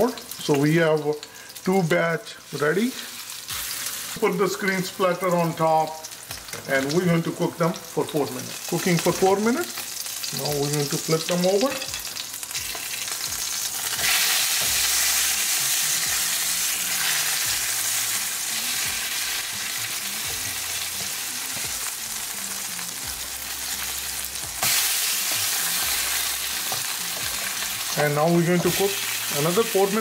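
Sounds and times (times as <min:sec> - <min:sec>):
patties sizzling in oil: 0:00.0 - 0:30.0
spatula turning patties: 0:10.3 - 0:30.0.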